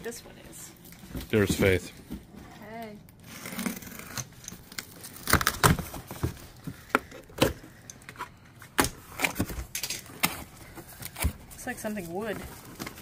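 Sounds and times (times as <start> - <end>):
box cutter slitting tape: 3.2 - 6.1.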